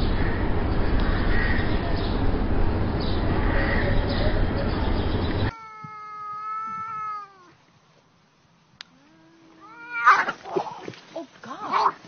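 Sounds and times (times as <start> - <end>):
cats yowling: 5.5 - 7.6, 9.4 - 10.9.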